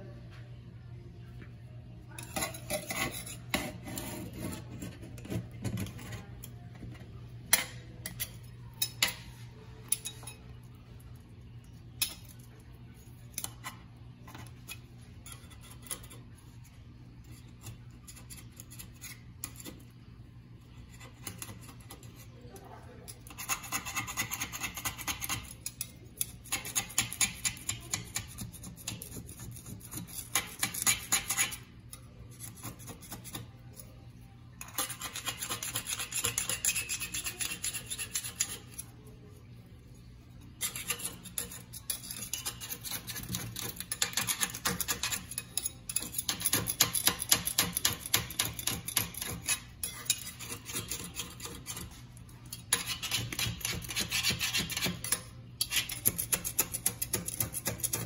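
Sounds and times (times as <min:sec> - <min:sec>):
metal blade scraping caulk: 0:02.2 - 0:06.3.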